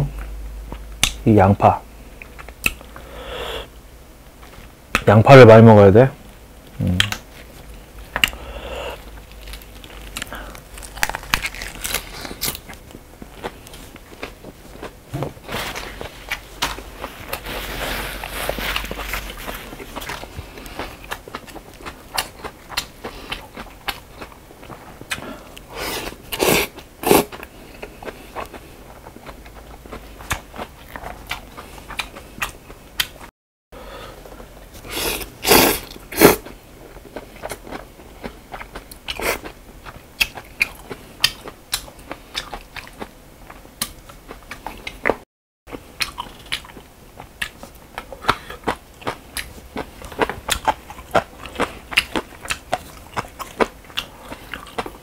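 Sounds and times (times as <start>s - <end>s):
wet chewing and lip-smacking: 18.7s - 25.7s, 27.4s - 33.3s, 37.2s - 55.0s
slurping noodles: 34.8s - 36.4s.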